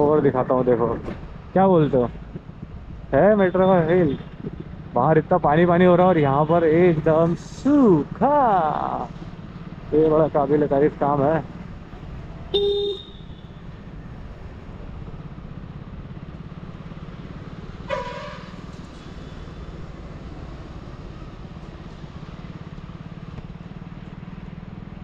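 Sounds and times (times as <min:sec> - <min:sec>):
motorcycle engine running: 0:11.2 - 0:18.7, 0:19.3 - 0:25.0
vehicle horn honk: 0:12.5 - 0:13.6, 0:17.9 - 0:18.6.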